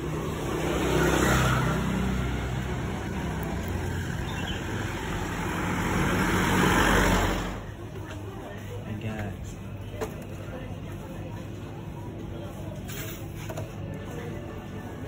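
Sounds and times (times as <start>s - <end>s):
motor scooter passing: 0.0s - 7.7s
vehicle engine: 0.0s - 8.1s.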